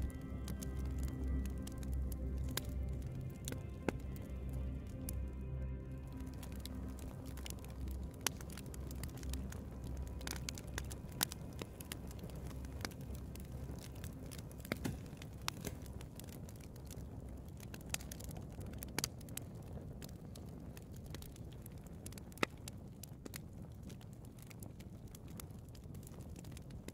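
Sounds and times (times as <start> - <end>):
low steady rumble: 0.0 - 18.8
log fire crackling: 0.0 - 26.9.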